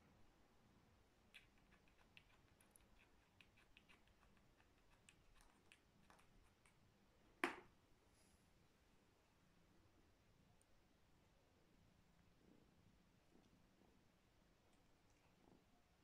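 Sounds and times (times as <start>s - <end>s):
cat claws ticking on tiles: 1.3s - 6.8s.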